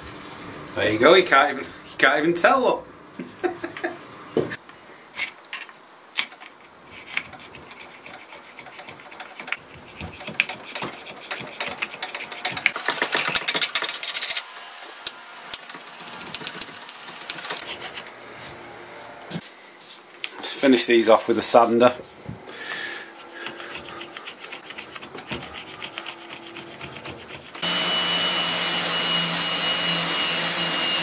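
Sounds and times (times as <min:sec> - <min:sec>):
hand tool scraping wood: 0:06.3 - 0:14.4, 0:15.4 - 0:18.6, 0:21.4 - 0:27.7.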